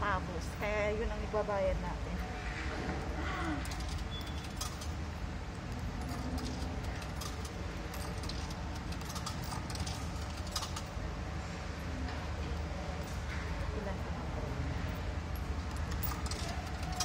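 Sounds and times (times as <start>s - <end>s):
coins clinking into vending machine: 3.3s - 11.0s, 15.4s - 17.0s.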